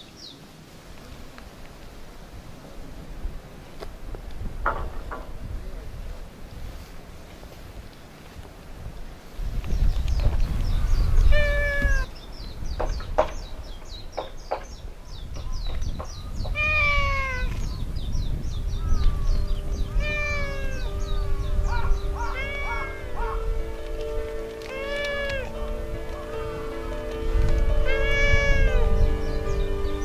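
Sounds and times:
wind rumbling on microphone: 0:00.0 - 0:30.0
cat meowing: 0:11.2 - 0:12.1, 0:16.5 - 0:17.6, 0:19.9 - 0:20.9, 0:21.7 - 0:23.4, 0:24.6 - 0:25.6, 0:27.8 - 0:29.0.

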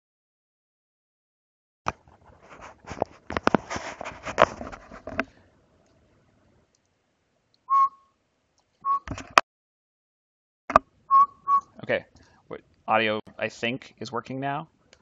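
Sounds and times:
headset microphone handling noise: 0:01.9 - 0:05.4, 0:08.9 - 0:09.4
short whistled note: 0:07.7 - 0:08.1, 0:08.8 - 0:09.1, 0:11.1 - 0:11.7.

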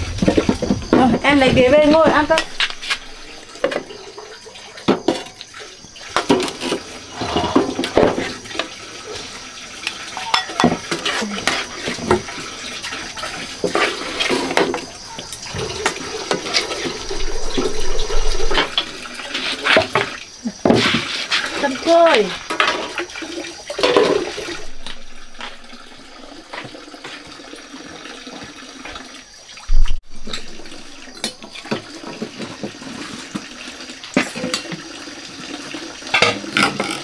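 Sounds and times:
water running: 0:00.0 - 0:37.0
dishes and cutlery clattering: 0:10.2 - 0:11.6, 0:36.1 - 0:37.0.

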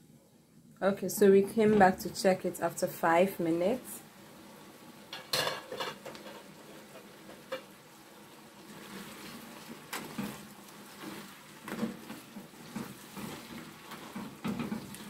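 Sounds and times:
stew bubbling and sizzling: 0:00.0 - 0:15.0
spatula stirring with scrapes: 0:05.7 - 0:15.0.

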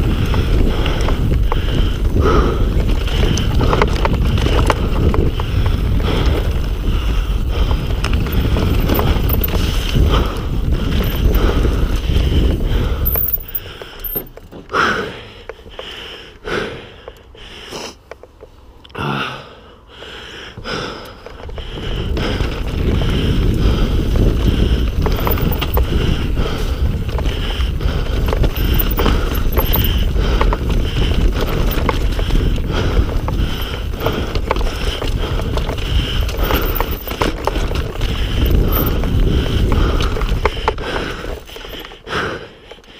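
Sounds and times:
wind rushing over microphone: 0:00.0 - 0:14.2, 0:21.4 - 0:41.5
bike rattling over rough ground: 0:00.0 - 0:17.4, 0:20.5 - 0:42.9.

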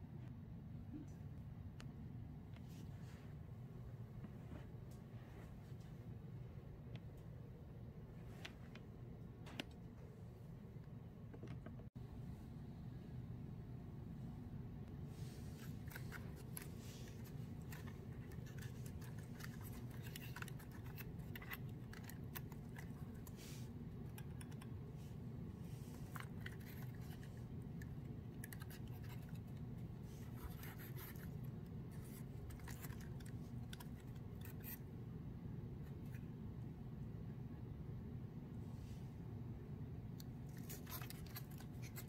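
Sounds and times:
steady low hum: 0:00.0 - 0:42.0
fingers handling cardboard model: 0:15.6 - 0:25.0, 0:25.9 - 0:34.9.

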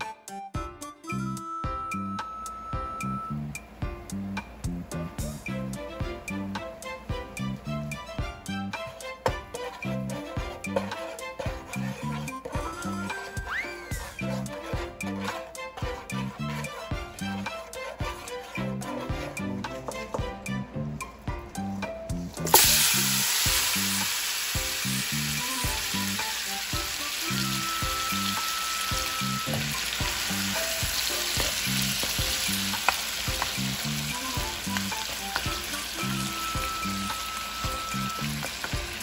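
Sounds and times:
background music with steady beat: 0:00.0 - 0:39.0
wooden spoon stirring meat: 0:08.7 - 0:20.5, 0:25.6 - 0:39.0
meat sizzling in hot oil: 0:22.4 - 0:39.0.

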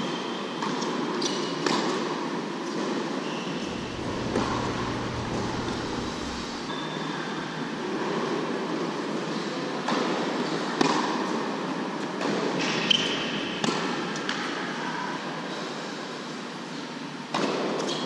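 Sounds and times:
steady background hiss: 0:03.6 - 0:06.7.

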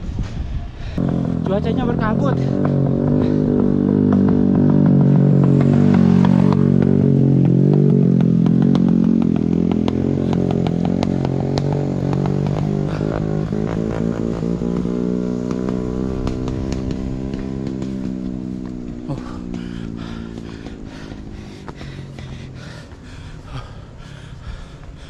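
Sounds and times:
small engine running: 0:09.8 - 0:25.0.

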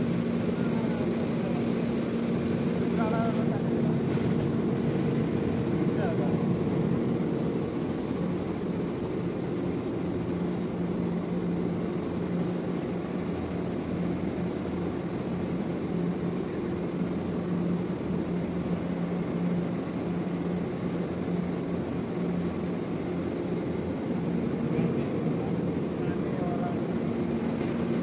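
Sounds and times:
industrial machinery droning: 0:00.0 - 0:28.0.

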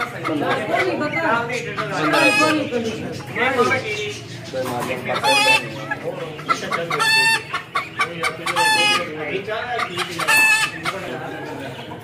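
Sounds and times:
chicken calling: 0:00.0 - 0:12.0
murmur of voices: 0:00.0 - 0:12.0.

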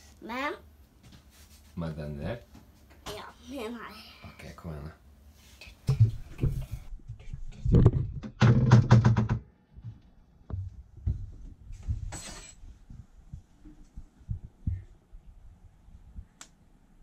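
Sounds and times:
knocks and thumps: 0:05.8 - 0:14.9.

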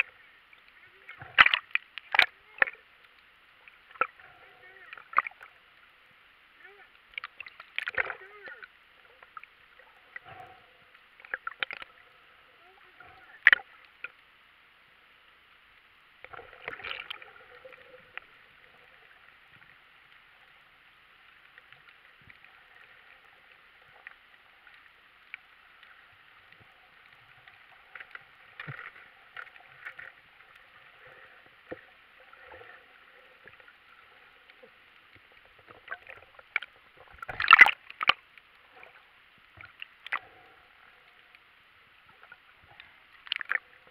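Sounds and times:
faint underwater hiss: 0:00.0 - 0:43.9
clicks and crackles: 0:00.5 - 0:05.6, 0:06.9 - 0:12.0, 0:21.2 - 0:32.8, 0:33.4 - 0:41.4, 0:42.0 - 0:43.9.

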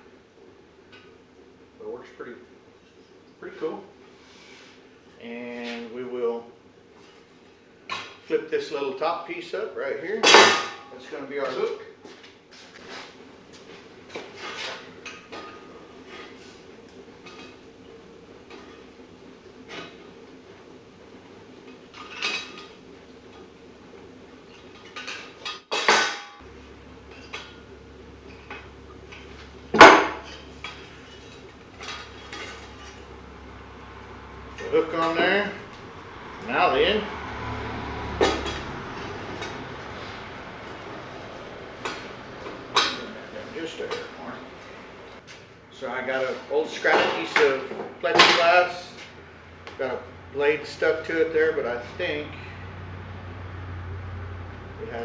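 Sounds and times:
sheet metal clinking and scraping: 0:28.3 - 0:33.1, 0:38.2 - 0:40.8.

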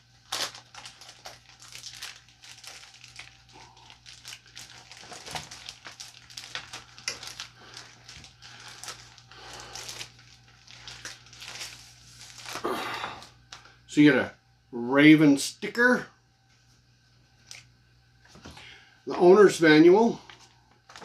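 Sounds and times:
paper and packaging crinkling: 0:00.0 - 0:12.8, 0:20.2 - 0:21.0.

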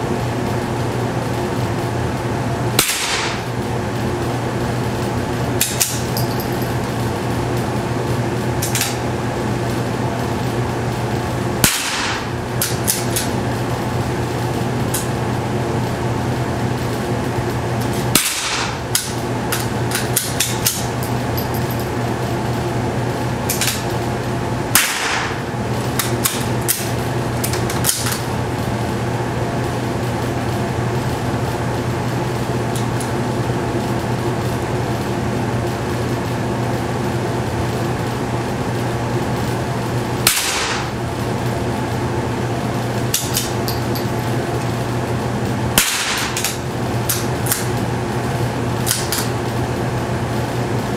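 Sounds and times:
fan-like hum: 0:00.0 - 0:50.9
rifle shots: 0:02.8 - 0:03.4, 0:11.6 - 0:12.3, 0:24.8 - 0:25.4, 0:40.3 - 0:40.9, 0:45.8 - 0:46.4.

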